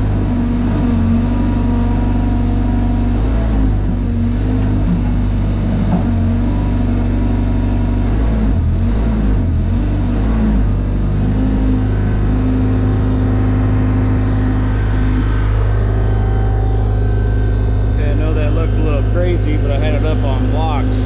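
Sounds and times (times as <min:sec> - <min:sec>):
crane engine running: 0:00.0 - 0:21.0
hydraulic whine: 0:00.0 - 0:21.0
steady tone: 0:10.7 - 0:21.0.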